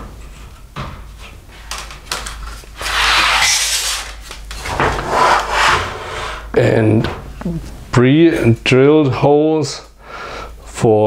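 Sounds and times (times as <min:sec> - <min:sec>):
plastic scraping on table: 0:02.8 - 0:06.4.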